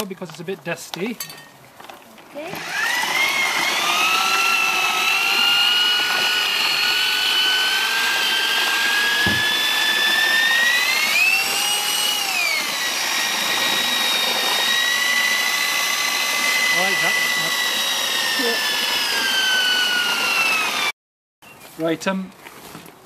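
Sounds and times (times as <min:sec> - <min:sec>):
electric drill mixer whining: 0:02.4 - 0:21.0
knock: 0:09.2 - 0:09.5.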